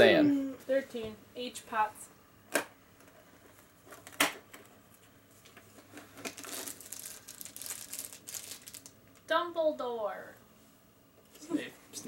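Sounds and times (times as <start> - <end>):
wrapper crinkling and tearing: 6.1 - 9.2.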